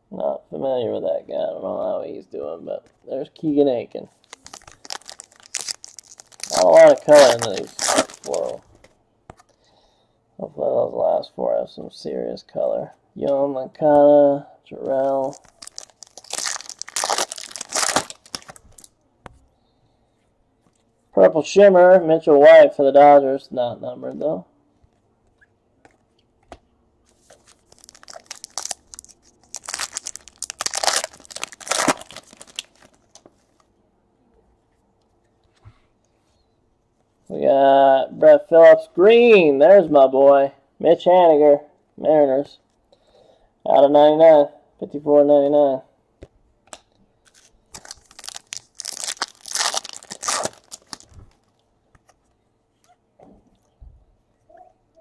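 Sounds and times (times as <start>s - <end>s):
foil wrapper tearing and crinkling: 4.2s - 8.6s, 15.1s - 18.9s, 27.4s - 33.0s, 47.2s - 51.5s.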